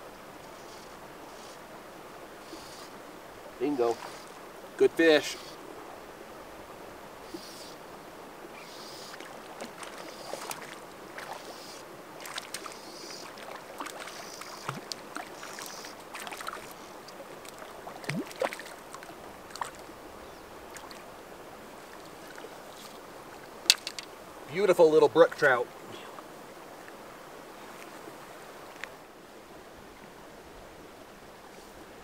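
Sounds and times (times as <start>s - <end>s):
water plunks: 9.2s - 11.4s, 12.2s - 19.9s
fish splashing at water surface: 12.2s - 16.8s, 17.4s - 19.8s.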